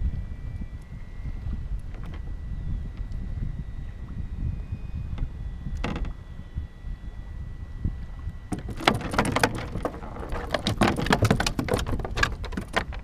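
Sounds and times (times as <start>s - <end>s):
wind rumble on microphone: 0.0s - 13.0s
hard gear clicking and clattering: 8.6s - 13.0s.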